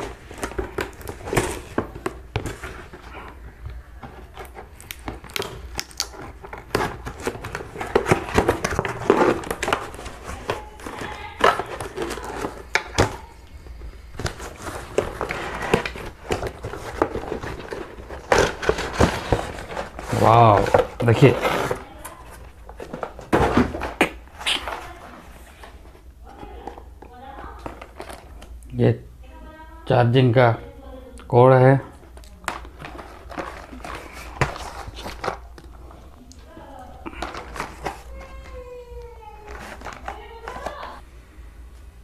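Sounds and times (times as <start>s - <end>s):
cardboard packaging being opened: 0.0s - 13.3s, 14.1s - 28.6s, 32.1s - 41.0s
plastic wrap crinkling: 0.0s - 28.6s, 31.9s - 41.0s.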